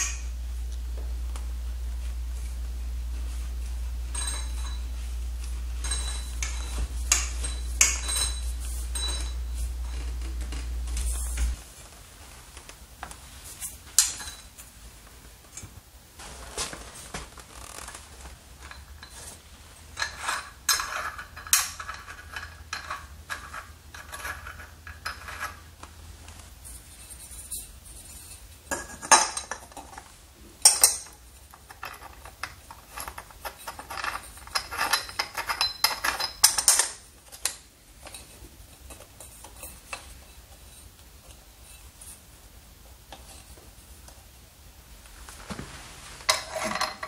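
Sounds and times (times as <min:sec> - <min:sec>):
metal parts clinking and scraping: 0:04.1 - 0:05.1, 0:05.8 - 0:11.6, 0:13.6 - 0:14.6, 0:18.6 - 0:25.8, 0:26.7 - 0:42.2, 0:46.2 - 0:47.0.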